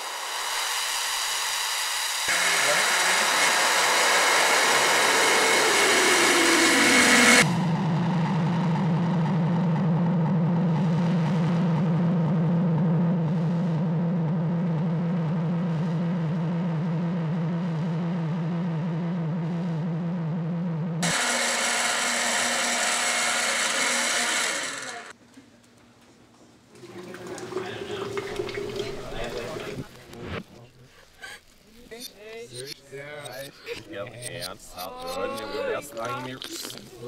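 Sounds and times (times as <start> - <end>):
blender running: 0.0 - 7.6, 21.0 - 25.1
low synthesizer drone: 0.0 - 25.1.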